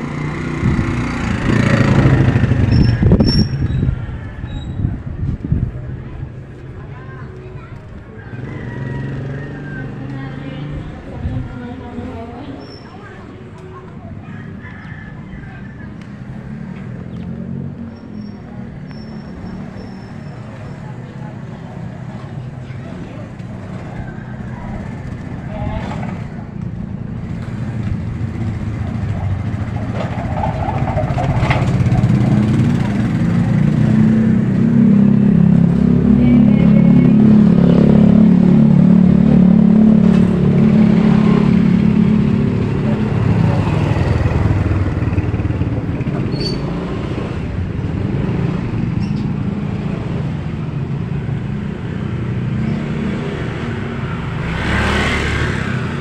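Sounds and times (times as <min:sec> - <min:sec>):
motorcycle engine running: 0:00.0 - 0:06.6, 0:22.9 - 0:52.8
street noise: 0:00.0 - 0:56.0.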